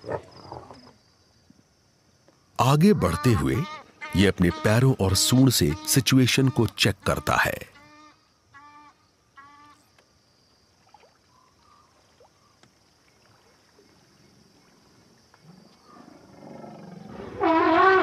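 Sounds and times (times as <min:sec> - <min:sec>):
bird honking call: 0:03.0 - 0:09.8
faint chirps and ticks: 0:07.7 - 0:17.0.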